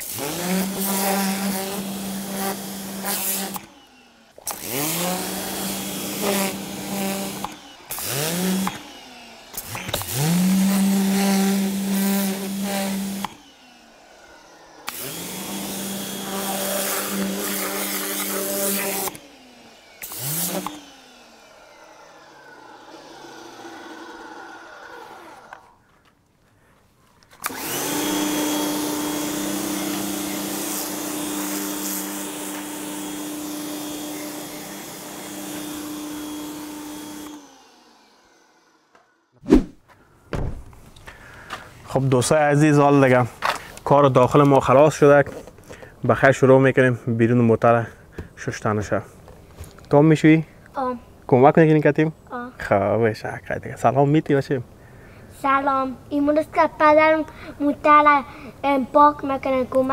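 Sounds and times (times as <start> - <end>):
vacuum motor running: 0.0 - 25.8, 27.4 - 39.2.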